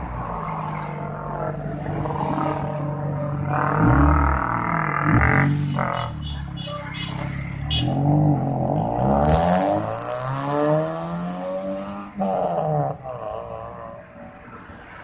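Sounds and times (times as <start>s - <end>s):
car exhaust accelerating: 3.3s - 6.2s.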